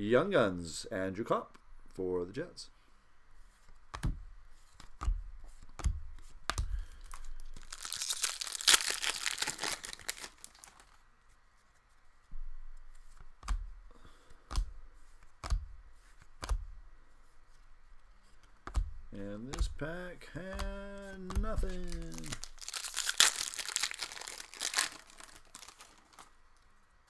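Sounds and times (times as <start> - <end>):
cards knocking while handled: 3.7 - 7.7, 13.2 - 16.8, 18.4 - 22.5
foil wrapper tearing and crinkling: 7.4 - 11.0, 21.6 - 26.4.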